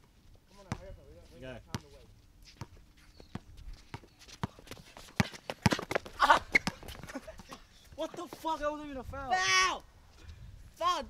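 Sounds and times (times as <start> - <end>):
footsteps on outdoor court: 0.0 - 8.9
basketball bouncing: 4.4 - 7.2
person shouting: 9.2 - 9.8.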